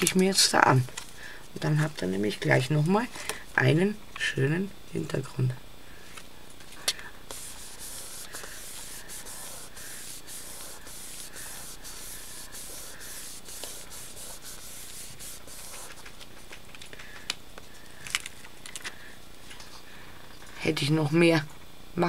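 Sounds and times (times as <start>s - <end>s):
hands rubbing paper: 7.3s - 16.5s.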